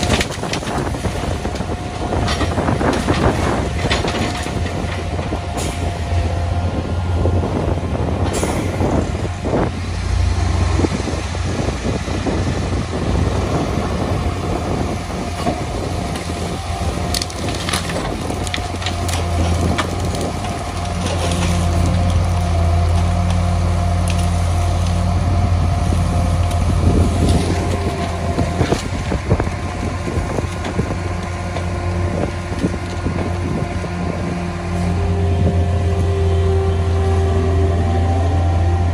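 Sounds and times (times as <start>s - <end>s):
wood cracking and snapping: 0.0s - 5.4s, 15.3s - 25.1s, 26.2s - 33.9s
engines droning: 0.0s - 38.9s
hydraulic compactor crushing branches: 0.0s - 38.9s.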